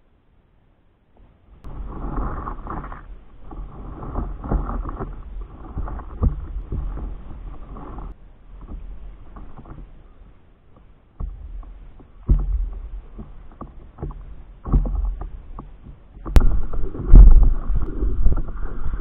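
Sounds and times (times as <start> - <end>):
paddle strokes splashing: 1.2 - 19.0
low rumble: 1.6 - 10.4, 14.2 - 19.0
water splashing against paddleboard: 1.6 - 19.0.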